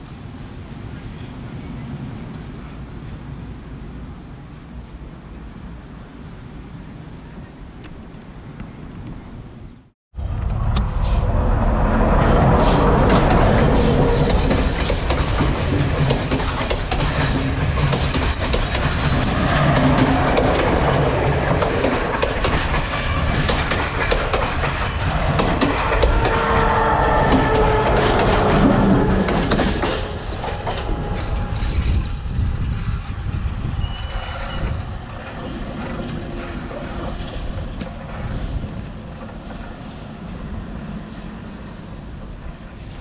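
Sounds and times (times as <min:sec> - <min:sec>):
diesel train rumbling past: 0:00.0 - 0:43.0.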